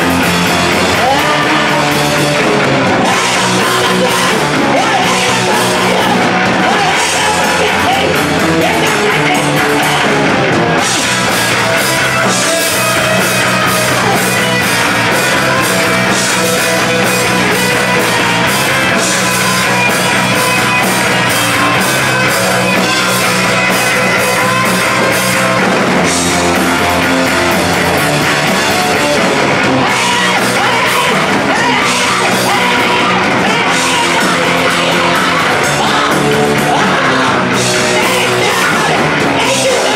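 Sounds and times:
drum kit: 0.0s - 39.9s
electric guitars: 0.0s - 39.9s
woman singing: 0.9s - 2.1s, 2.9s - 10.3s, 29.8s - 39.9s.

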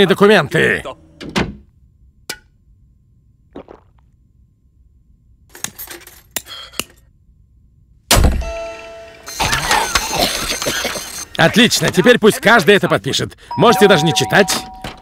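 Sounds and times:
printer buzzing and whirring: 9.2s - 11.3s.

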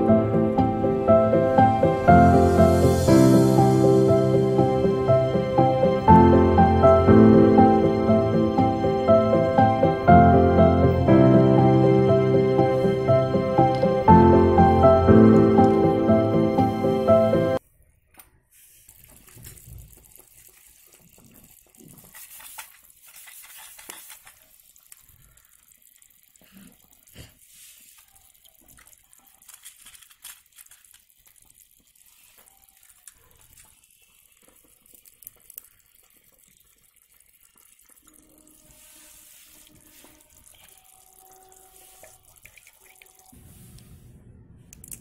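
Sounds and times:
water heating hiss: 0.0s - 17.6s, 18.5s - 44.1s
plastic box clicks and rustles: 29.4s - 31.0s.

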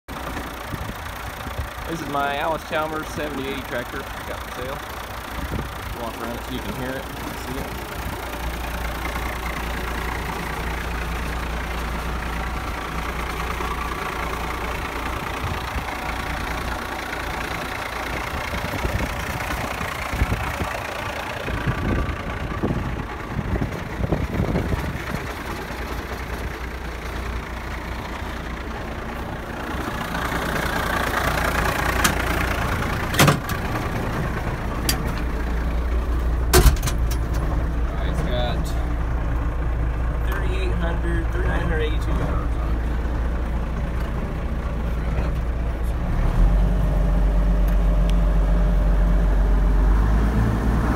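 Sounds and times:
diesel tractor idling: 0.1s - 50.9s.

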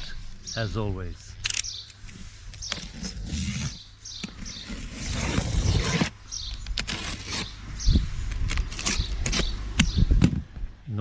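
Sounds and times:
short clicks: 1.4s - 2.0s
cardboard box scraping: 2.6s - 6.2s, 6.8s - 7.9s, 8.6s - 9.5s.

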